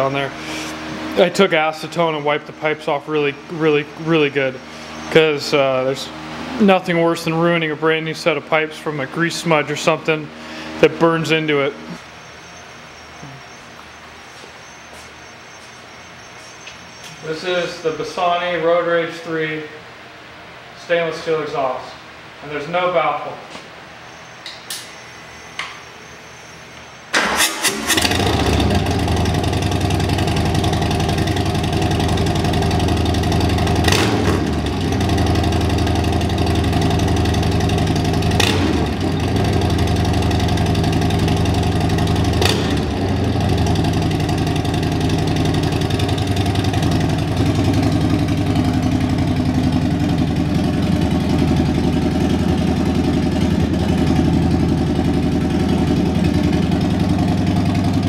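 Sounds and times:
motorcycle engine starting: 0:27.1 - 0:58.0
motorcycle engine idling: 0:27.8 - 0:58.0.

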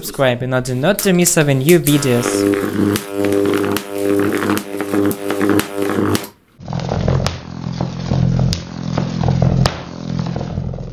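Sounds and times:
electric arc buzzing: 0:01.7 - 0:10.9
electric arc snaps: 0:01.7 - 0:10.9.

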